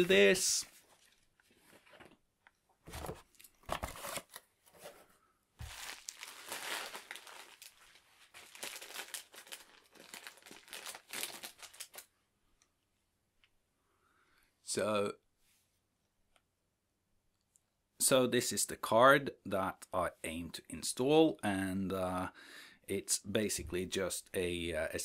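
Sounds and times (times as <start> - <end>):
plastic packaging crinkling: 5.6 - 12.1.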